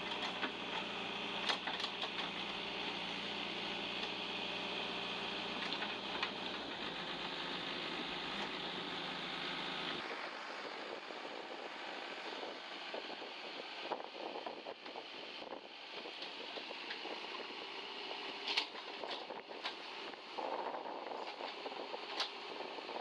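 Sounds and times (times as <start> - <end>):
clicks and scraping: 0.0 - 3.2, 5.5 - 6.9, 18.4 - 19.8
backhoe digging soil: 0.0 - 10.1, 16.1 - 23.0
diesel engine running: 0.0 - 23.0.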